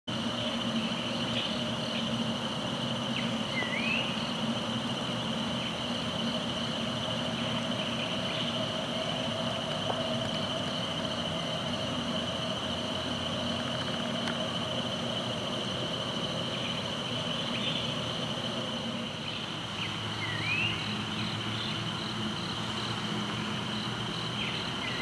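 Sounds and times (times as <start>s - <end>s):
faint low hum: 0.1s - 25.0s
insect drone: 0.1s - 25.0s
bird calls: 0.4s - 14.4s, 16.4s - 22.0s.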